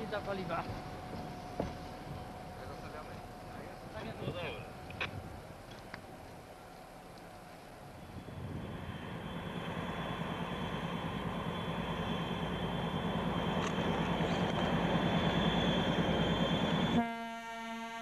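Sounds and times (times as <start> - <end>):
locomotive diesel engines running: 0.0 - 17.1
steady high whine: 7.5 - 17.0.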